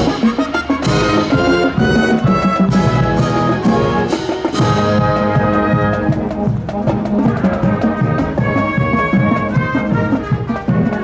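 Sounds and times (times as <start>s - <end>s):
drum and cymbal strikes: 0.0s - 5.6s
marching band playing: 0.0s - 11.0s.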